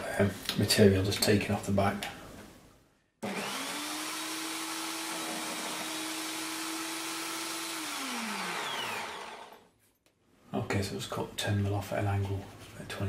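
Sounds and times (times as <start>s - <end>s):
saw cutting wooden dowel: 3.2s - 9.6s
table saw motor running: 3.2s - 9.6s.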